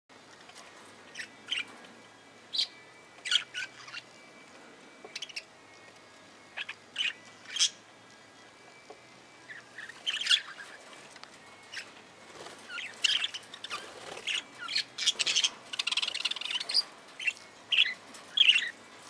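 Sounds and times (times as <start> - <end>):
budgerigars chirping: 1.1 - 1.8, 2.5 - 4.1, 5.1 - 5.5, 6.5 - 7.8, 9.4 - 11.0, 11.6 - 18.8.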